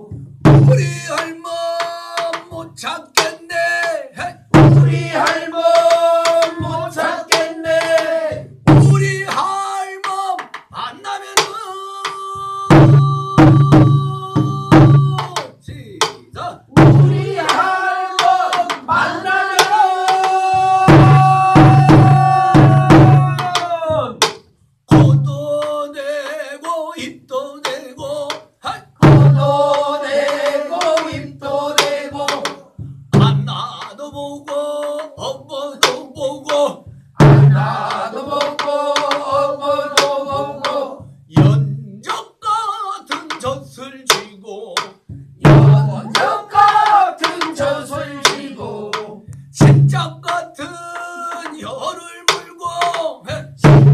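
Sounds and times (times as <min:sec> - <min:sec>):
man singing folk song: 0:00.7 - 0:07.9, 0:24.9 - 0:29.8, 0:32.1 - 0:36.9, 0:38.6 - 0:53.6
deep drum strokes: 0:04.5 - 0:09.2, 0:12.4 - 0:24.2, 0:29.0 - 0:33.6, 0:36.8 - 0:41.8, 0:45.1 - 0:50.3.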